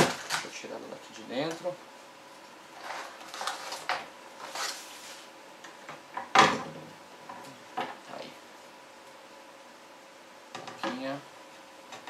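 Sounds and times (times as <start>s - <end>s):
cardboard scraping and rustling: 2.8s - 5.3s.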